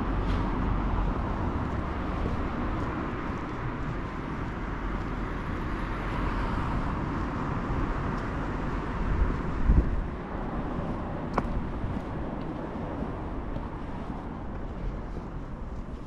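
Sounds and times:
road traffic: 0.0s - 16.0s
low rumbling bumps: 7.4s - 16.0s.

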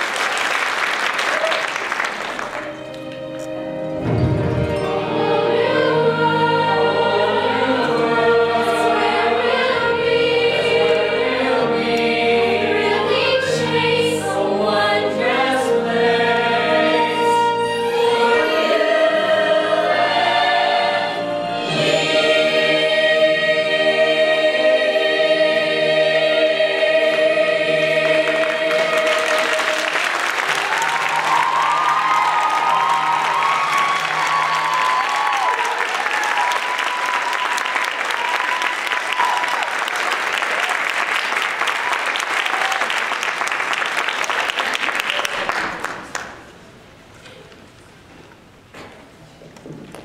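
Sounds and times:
applause: 0.0s - 3.0s, 28.2s - 46.5s
musical accompaniment: 1.8s - 39.4s
ensemble singing in chorus: 4.1s - 35.7s.

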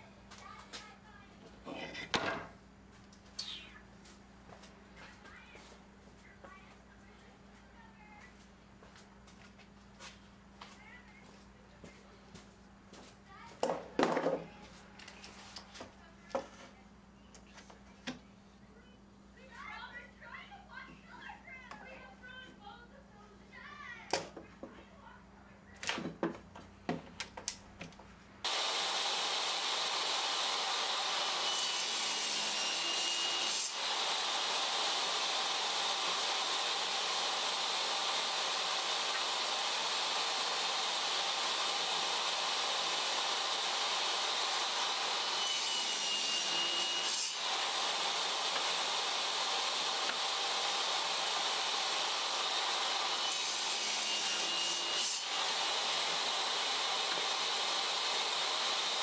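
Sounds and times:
table saw cutting wood: 28.4s - 59.0s.

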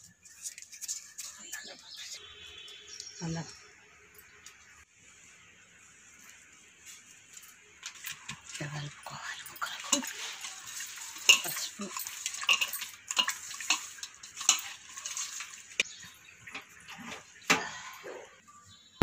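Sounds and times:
wet squelching and sliding: 9.6s - 15.9s.

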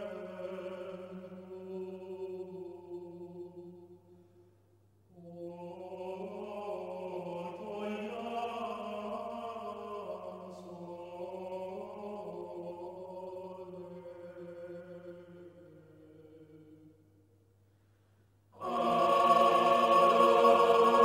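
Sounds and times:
choir singing: 0.0s - 3.0s, 5.5s - 16.0s, 18.6s - 21.0s.

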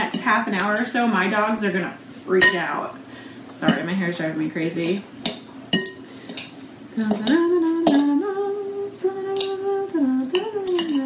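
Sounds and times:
woman humming: 7.0s - 11.0s.

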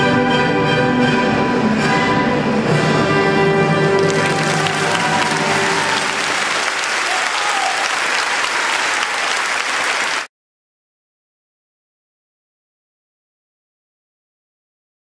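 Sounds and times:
dance music: 4.0s - 7.2s
audience applause: 4.0s - 10.3s.

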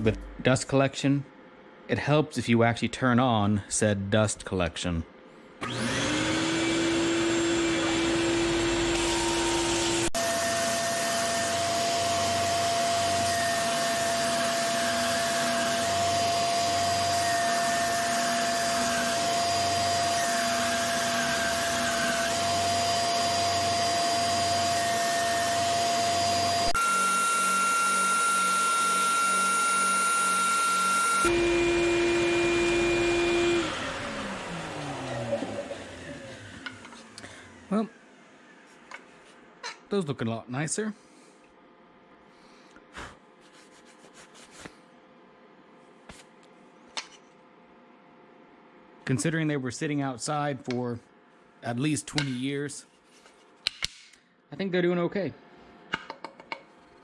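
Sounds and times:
shop vacuum running: 5.6s - 39.4s.

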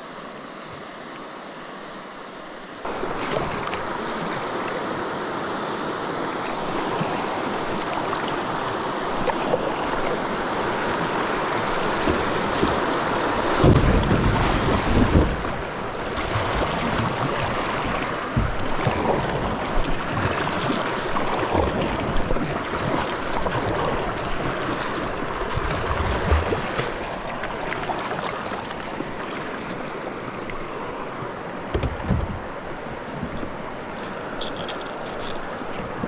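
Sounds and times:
river water flowing: 0.0s - 36.0s
wind gusting on microphone: 10.2s - 20.8s.

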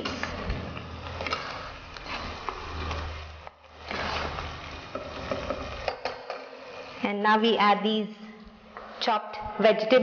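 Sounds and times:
food sizzling: 0.9s - 8.0s
spatula scraping a pot: 1.0s - 7.2s.

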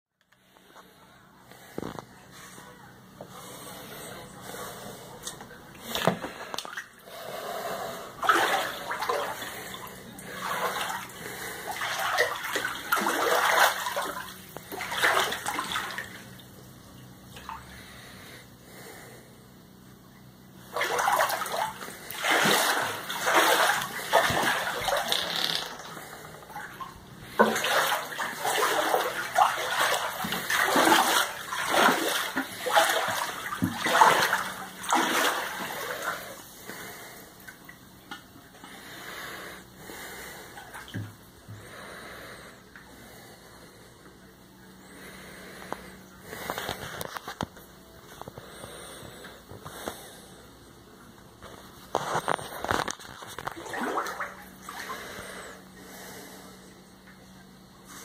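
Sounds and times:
floodwater splashing and sloshing: 5.8s - 7.0s, 8.2s - 16.5s, 20.6s - 37.7s, 51.9s - 55.4s.

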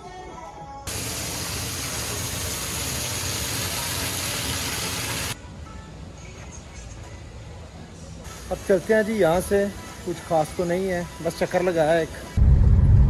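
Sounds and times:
fountain water splashing on pavement: 0.9s - 5.4s.

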